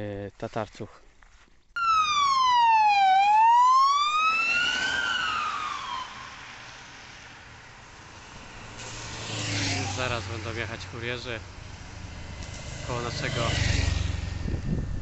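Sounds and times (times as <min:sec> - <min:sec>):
siren wailing: 0:01.8 - 0:08.4.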